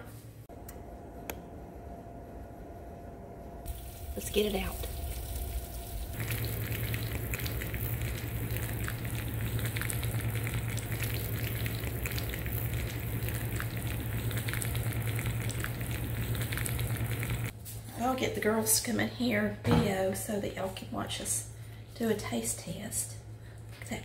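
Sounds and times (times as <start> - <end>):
low steady hum: 0.0 - 24.0
pie sizzling and crackling: 3.7 - 17.5.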